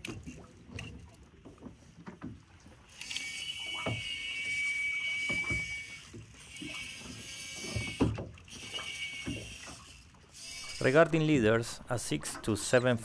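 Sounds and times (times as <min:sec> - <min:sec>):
fishing reel drag whining: 0:02.7 - 0:11.4.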